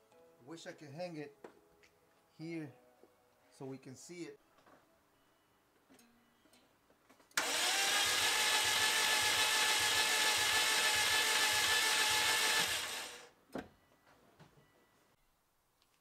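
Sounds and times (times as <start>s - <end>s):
engine cranking on starter motor: 7.4s - 13.3s.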